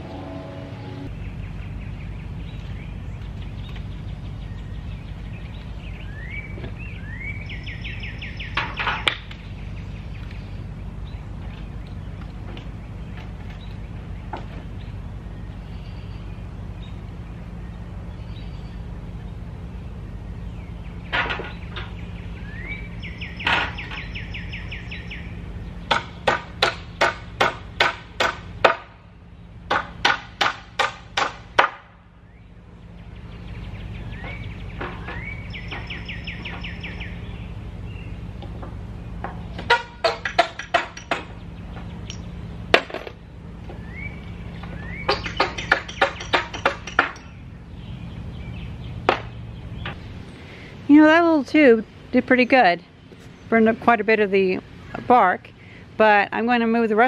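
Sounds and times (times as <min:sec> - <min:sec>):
bird trilling: 0:00.0 - 0:19.4, 0:20.3 - 0:26.3, 0:32.2 - 0:42.7, 0:43.7 - 0:51.2
low steady hum: 0:00.0 - 0:57.0.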